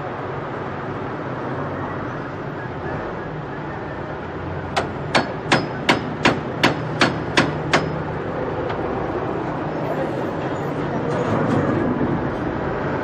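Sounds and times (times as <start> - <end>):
hammer striking chisel: 4.7 - 8.1.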